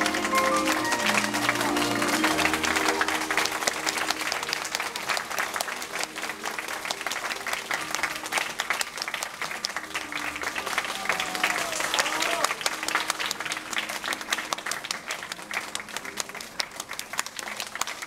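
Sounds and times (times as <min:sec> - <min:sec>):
audience applauding: 0:00.0 - 0:18.0.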